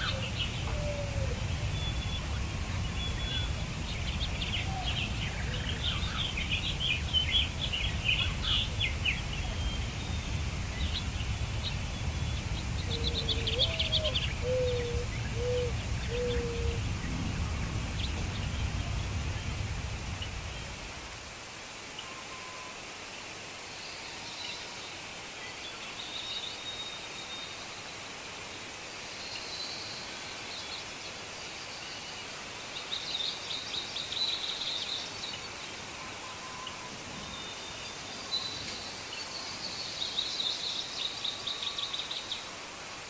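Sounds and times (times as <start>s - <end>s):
lower whistled notes: 0.0s - 21.3s
birds chirping and trilling: 0.0s - 21.4s
low background rumble: 0.0s - 21.4s.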